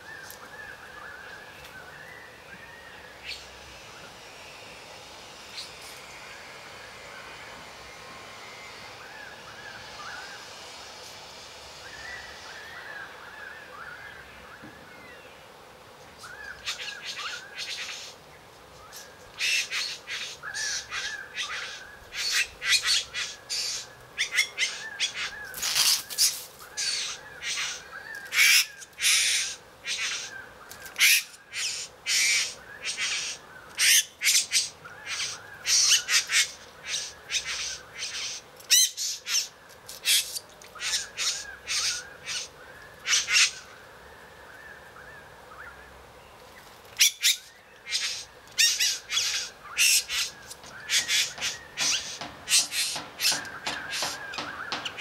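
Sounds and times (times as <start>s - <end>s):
bird squawks and buzzing churrs: 3.0s - 4.8s, 16.2s - 18.2s, 18.9s - 43.7s, 47.0s - 55.0s.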